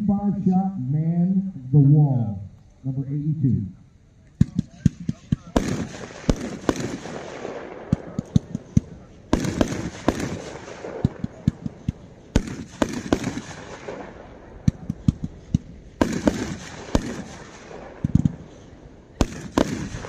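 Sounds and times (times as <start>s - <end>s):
sharp pops of bursting shells: 4.2s - 20.0s.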